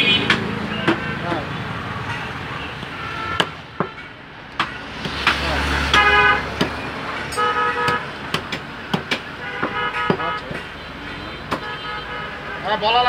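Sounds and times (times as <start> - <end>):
vehicle horns tooting: 0.0 - 8.2, 9.0 - 13.0
cleaver chopping meat on wood: 3.4 - 6.8, 7.9 - 10.7.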